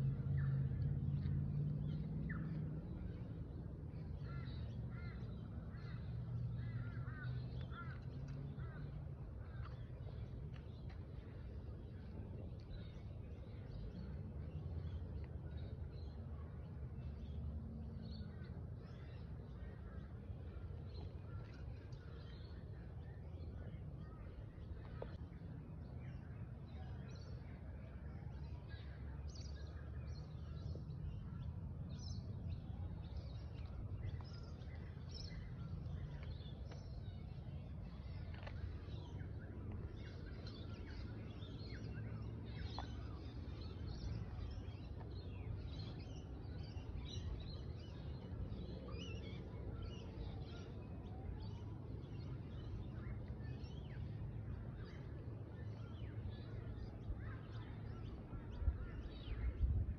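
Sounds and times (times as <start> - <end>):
low outdoor rumble: 0.0 - 59.9.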